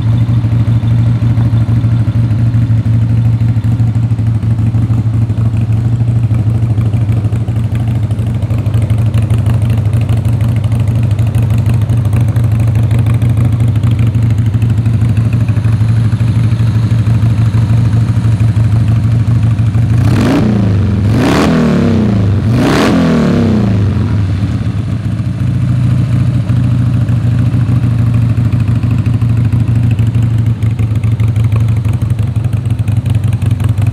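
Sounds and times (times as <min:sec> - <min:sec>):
motorcycle engine idling: 0:00.0 - 0:22.6, 0:23.3 - 0:33.9
motorcycle throttle blips: 0:00.0 - 0:25.0.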